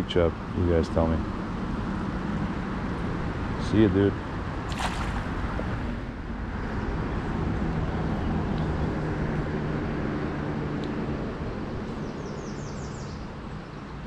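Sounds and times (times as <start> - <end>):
vehicle passing on road: 4.2 - 11.8.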